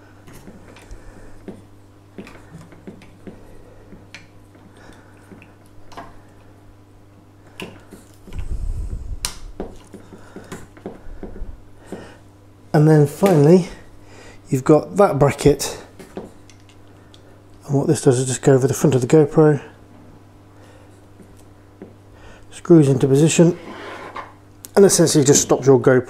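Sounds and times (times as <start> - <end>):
low hum: 8.2 - 10.4.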